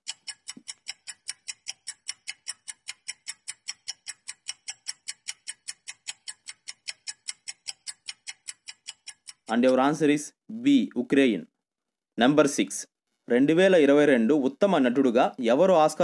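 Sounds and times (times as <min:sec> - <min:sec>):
rapid clock ticking: 0:00.0 - 0:10.0.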